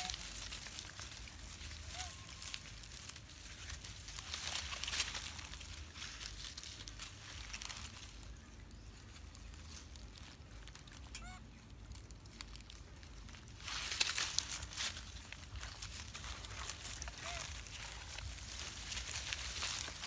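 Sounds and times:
rustling of dry leaves: 0:00.0 - 0:20.0
squeaky monkey call: 0:01.9 - 0:02.5, 0:11.1 - 0:11.4.

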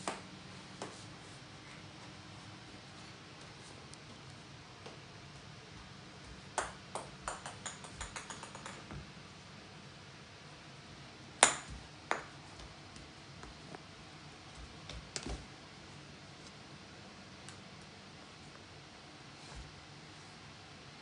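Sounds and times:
plastic ball bouncing on wood floor: 0:06.6 - 0:09.0, 0:11.4 - 0:12.3.

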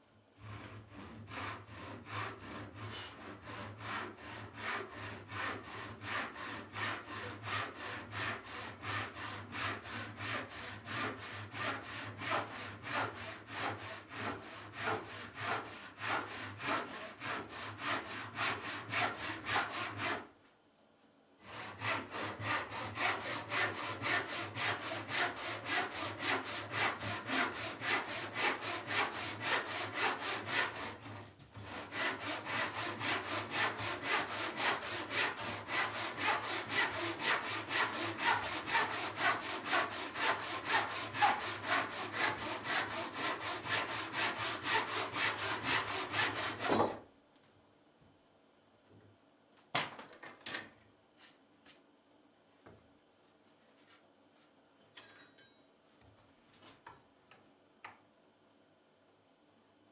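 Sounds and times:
hand saw cutting wood: 0:00.4 - 0:20.3, 0:21.4 - 0:47.0.

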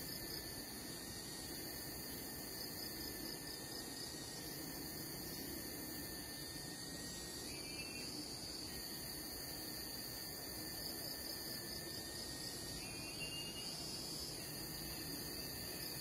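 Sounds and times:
insect chorus: 0:00.0 - 0:16.0
faint chirp: 0:07.1 - 0:09.0, 0:12.7 - 0:16.0.

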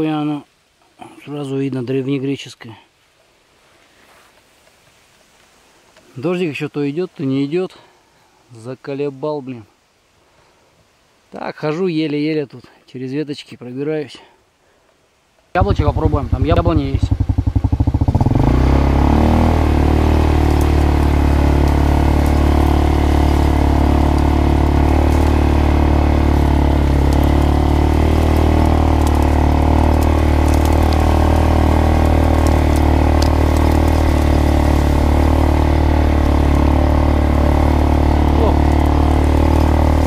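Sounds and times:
weed stalks crackling: 0:15.5 - 0:40.0
quad bike engine running: 0:15.6 - 0:40.0.

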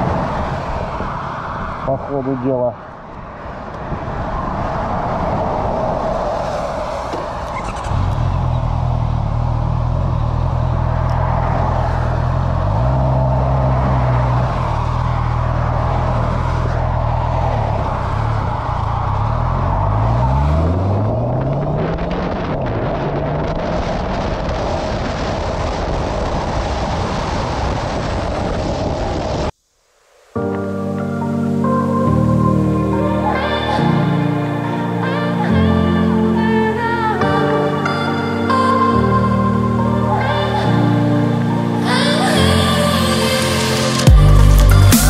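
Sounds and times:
wind and road noise: 0:00.0 - 0:45.0
motorcycle engine revving: 0:06.9 - 0:23.5.

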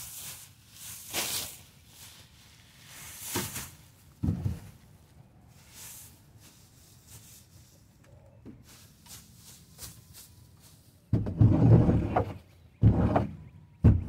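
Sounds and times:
rake scraping through straw: 0:00.0 - 0:03.8.

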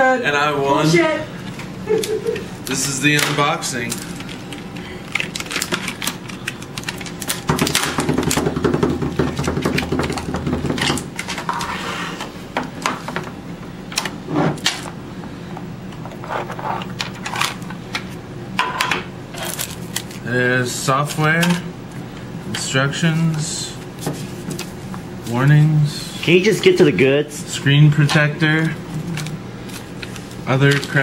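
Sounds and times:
package being opened by hand: 0:03.8 - 0:07.8, 0:19.4 - 0:20.2.

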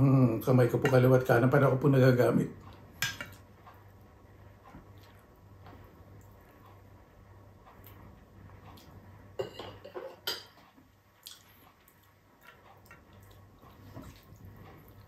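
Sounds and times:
cutlery clinking on ceramic plate: 0:09.4 - 0:10.6.

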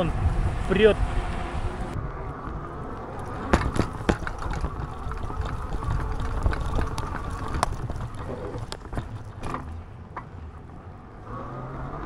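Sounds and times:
wind on microphone: 0:00.0 - 0:11.1
tyres rolling on paving: 0:01.9 - 0:11.2
bike knocking over bumps: 0:03.2 - 0:10.4.

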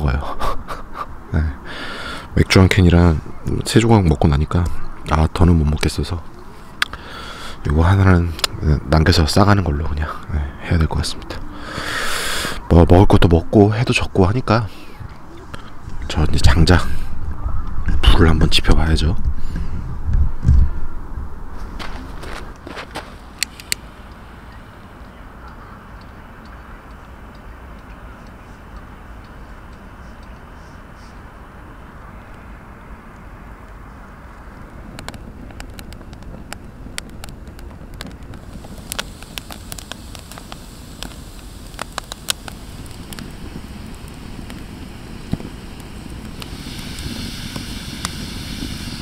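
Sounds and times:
hiss: 0:11.4 - 0:12.7, 0:38.4 - 0:49.0
fire rumbling low: 0:15.6 - 0:25.4, 0:32.0 - 0:49.0
campfire crackling and popping: 0:33.1 - 0:49.0
sharp clicks: 0:34.9 - 0:48.3.

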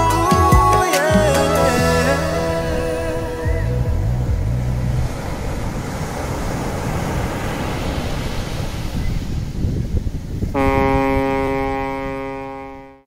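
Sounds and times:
low bass notes of song: 0:00.0 - 0:05.3
steady rushing noise: 0:02.1 - 0:12.2.

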